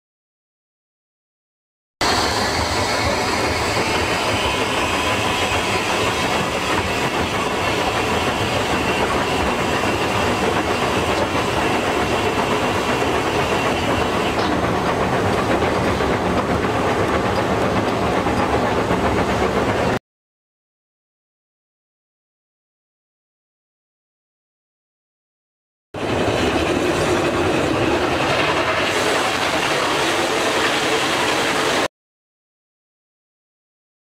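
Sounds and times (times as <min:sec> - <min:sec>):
steam hiss: 0:02.0 - 0:14.4, 0:26.2 - 0:31.9
locomotive rumbling: 0:02.0 - 0:20.0, 0:26.0 - 0:31.9
rail clatter: 0:02.0 - 0:20.0, 0:26.0 - 0:31.9.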